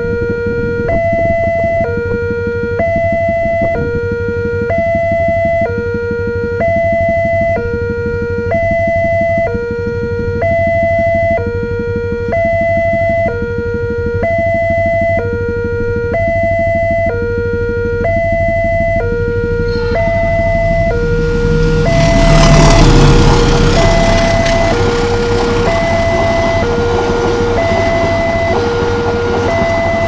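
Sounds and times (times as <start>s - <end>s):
level crossing two-tone alarm: 0.1s - 30.0s
oncoming train noise: 17.2s - 30.0s.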